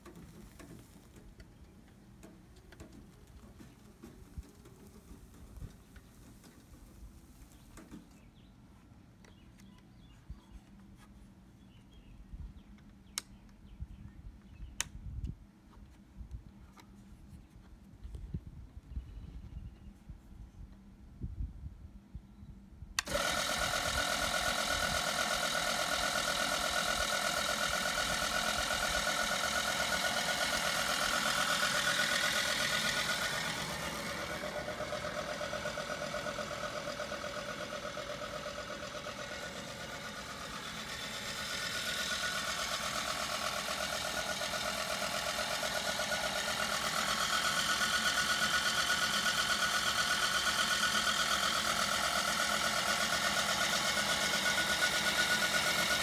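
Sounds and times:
lawn mower humming with whine: 0.0 - 8.6, 23.0 - 56.0.

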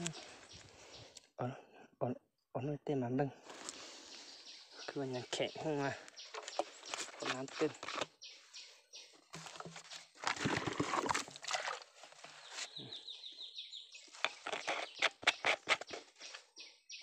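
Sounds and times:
digging and scraping in soil: 3.4 - 13.0, 13.9 - 16.6.

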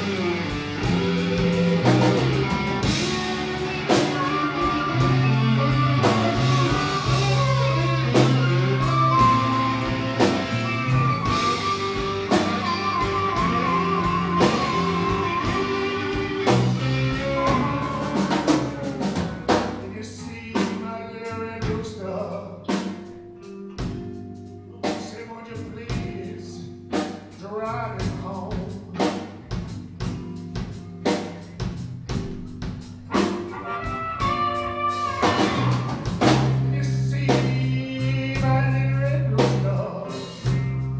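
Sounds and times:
bass guitar: 0.0 - 40.9
drum kit: 0.0 - 40.9
electric guitars: 0.0 - 40.9
man singing: 3.0 - 22.9, 24.8 - 29.2, 35.0 - 40.8.

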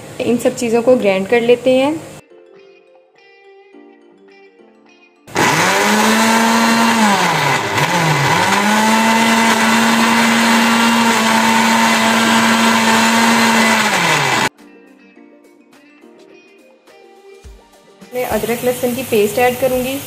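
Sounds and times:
electric blender grinding: 5.3 - 14.5.

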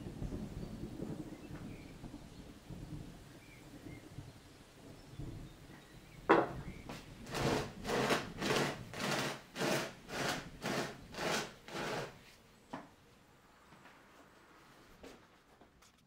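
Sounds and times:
plastic pot scraping on surface: 7.2 - 12.4.

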